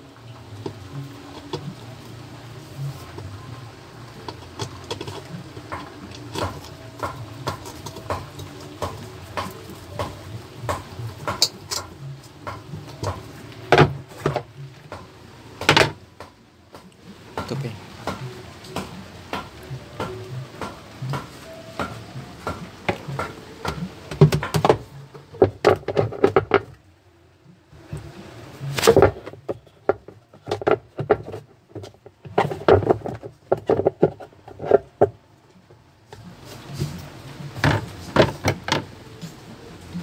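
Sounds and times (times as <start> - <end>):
plastic tub clicking and clattering: 22.8 - 26.8, 28.7 - 35.2, 37.5 - 38.9.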